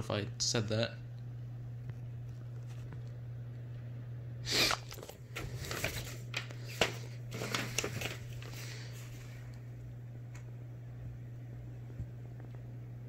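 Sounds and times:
paper pages rustling and snapping: 0:04.7 - 0:09.3.

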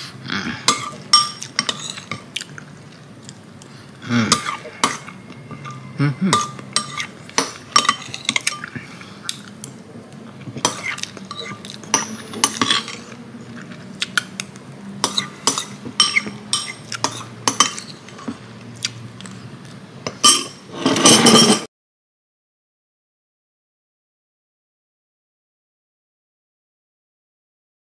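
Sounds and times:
spoon clinking on ceramic bowls: 0:00.7 - 0:02.3, 0:04.3 - 0:08.8, 0:10.7 - 0:13.1, 0:15.0 - 0:18.4, 0:20.1 - 0:21.7.

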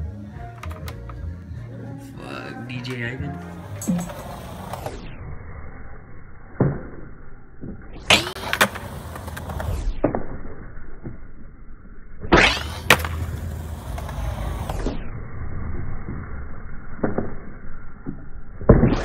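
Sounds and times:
skateboard wheels rolling on concrete: 0:02.8 - 0:05.1, 0:08.1 - 0:10.0, 0:12.4 - 0:15.0
skateboard cracks: 0:08.1 - 0:09.8, 0:12.4 - 0:14.9.

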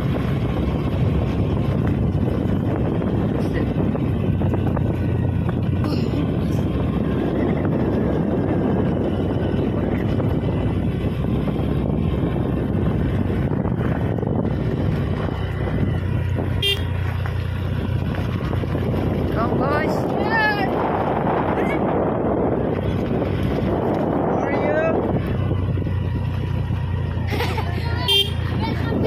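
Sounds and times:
small motorbike engine running: 0:00.0 - 0:29.0
wind buffeting microphone: 0:00.0 - 0:29.0.

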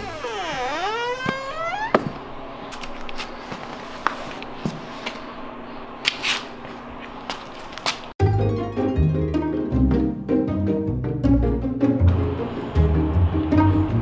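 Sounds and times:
door hinge creaking: 0:00.0 - 0:02.3
footsteps on concrete floor: 0:01.2 - 0:05.3, 0:06.0 - 0:08.2.

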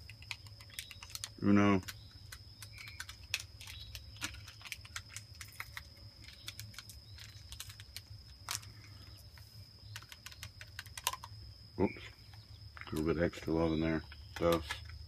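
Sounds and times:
small clicks and ticks: 0:00.0 - 0:08.7, 0:09.8 - 0:11.4.

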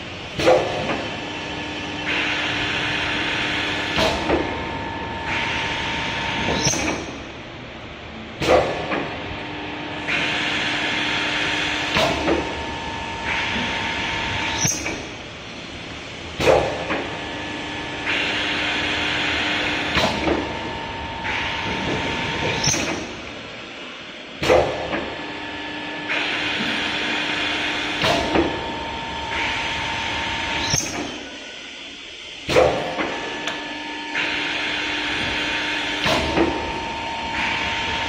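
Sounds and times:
machine motor whine: 0:16.8 - 0:23.3, 0:24.8 - 0:38.0.

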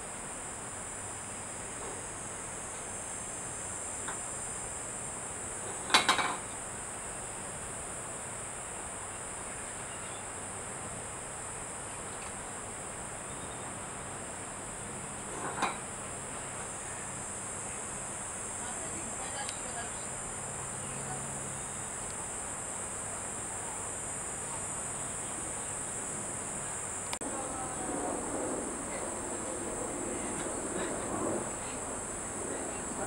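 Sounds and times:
high-pitched insect chorus: 0:00.0 - 0:33.0
can clattering on wooden table: 0:05.8 - 0:06.4.

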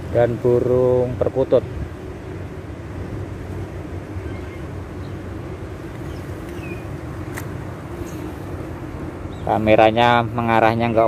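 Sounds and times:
outdoor background rumble: 0:00.0 - 0:11.0
sharp click: 0:07.3 - 0:07.5.

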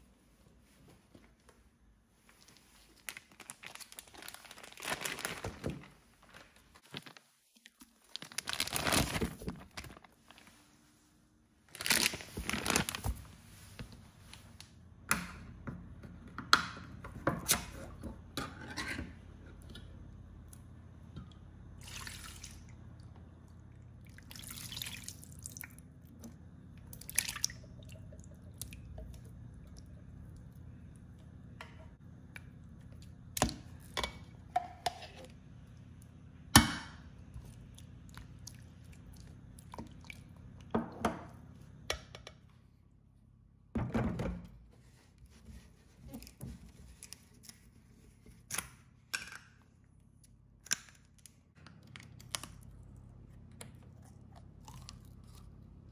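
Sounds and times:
low steady hum: 0:00.0 - 0:55.9
liquid pouring and squelching: 0:21.7 - 0:31.3, 0:37.3 - 0:40.8.

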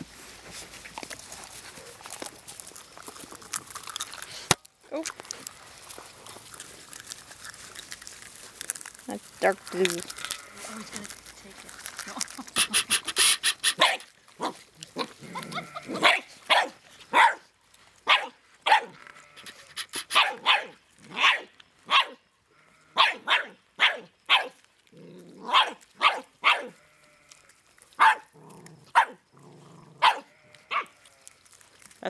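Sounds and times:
puppy growling: 0:12.0 - 0:16.2, 0:24.9 - 0:25.8, 0:28.0 - 0:30.9
puppy barking: 0:12.6 - 0:17.5, 0:18.1 - 0:22.2, 0:23.0 - 0:24.6, 0:25.4 - 0:26.8, 0:28.0 - 0:28.3, 0:28.9 - 0:29.2, 0:30.0 - 0:31.0.

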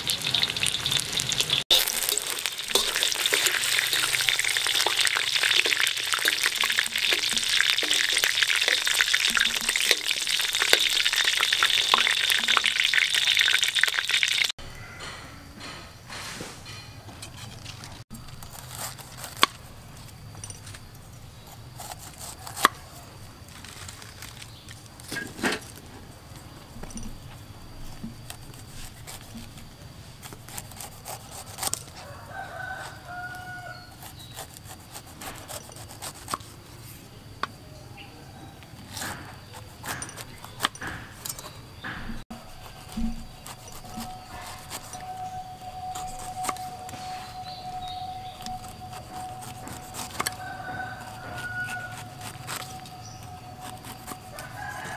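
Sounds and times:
bird calling: 0:41.4 - 0:54.2.

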